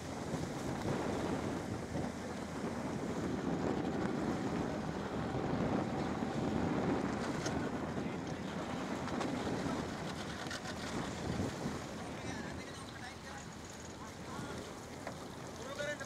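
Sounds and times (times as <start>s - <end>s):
choppy sea water: 0.0s - 16.0s
outboard motor running: 0.0s - 16.0s
wind buffeting microphone: 0.0s - 16.0s.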